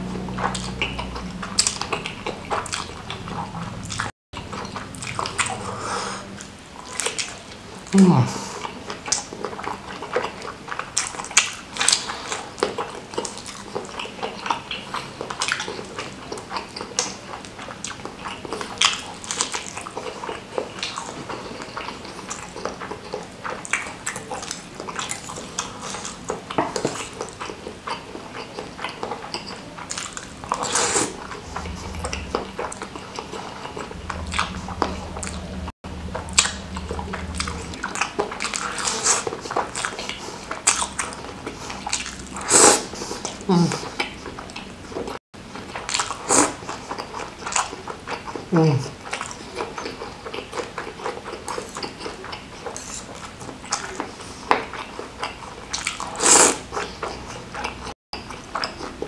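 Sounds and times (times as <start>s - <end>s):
wet chewing and slurping: 0.0s - 59.0s
cutlery clinking on dish: 29.3s - 29.6s.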